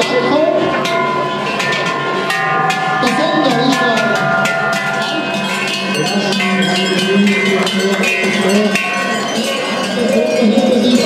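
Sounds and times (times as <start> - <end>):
cowbells clanging: 0.0 - 11.0.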